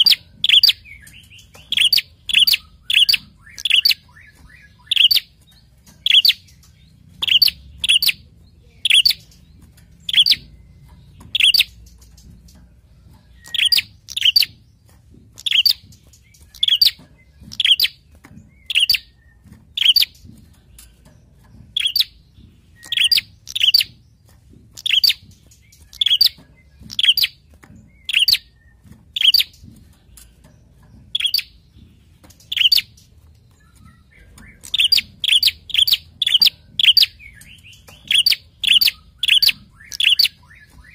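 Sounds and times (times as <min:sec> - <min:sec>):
bird chirping: 0:00.0 - 0:40.9.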